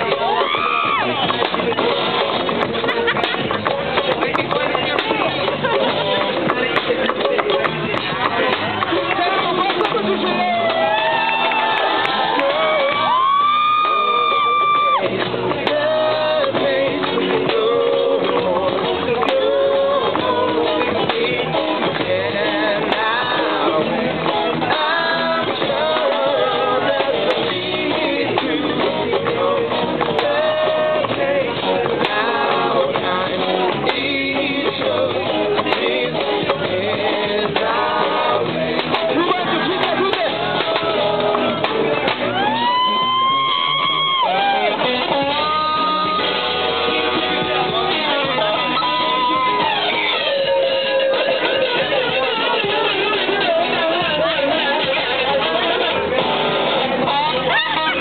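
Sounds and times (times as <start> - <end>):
drums: 0.0 - 58.0
electric guitar bending notes: 0.0 - 58.0
live rock band playing: 0.0 - 58.0
person singing: 12.4 - 58.0.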